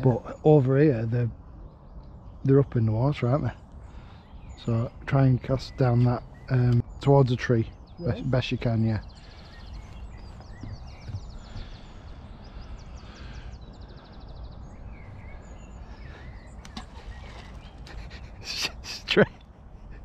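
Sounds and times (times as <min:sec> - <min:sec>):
birds chirping and trilling: 0:00.0 - 0:20.0
wind rumble on microphone: 0:07.6 - 0:18.5.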